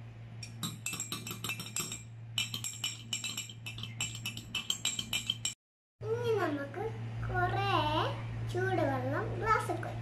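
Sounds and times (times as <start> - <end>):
spoon clinking in glass jug: 0.4 - 5.6.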